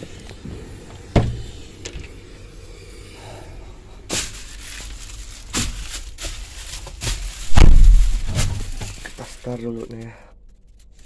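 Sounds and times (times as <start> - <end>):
knocks and bumps in excavator cab: 1.1 - 1.6
scuffs and bangs: 5.5 - 9.3.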